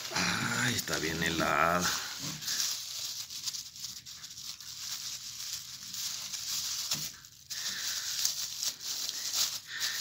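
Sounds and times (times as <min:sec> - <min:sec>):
plastic bag rustling: 0:00.0 - 0:10.0.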